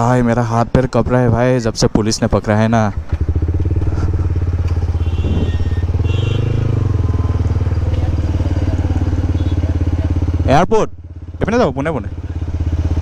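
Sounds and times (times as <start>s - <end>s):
motorcycle engine idling: 0.1s - 13.0s.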